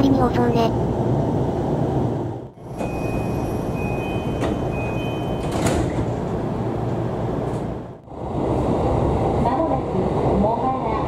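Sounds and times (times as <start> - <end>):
train low rumble: 0.0 - 11.0
sliding doors knocking shut: 4.3 - 6.3.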